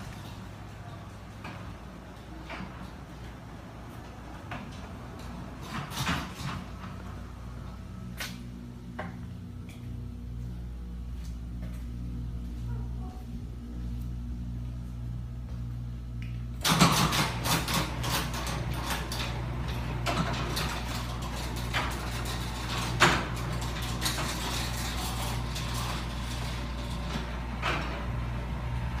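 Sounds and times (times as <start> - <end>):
garage door rattling and clunking: 0.0 - 7.6, 16.6 - 29.0
low hum: 6.4 - 29.0.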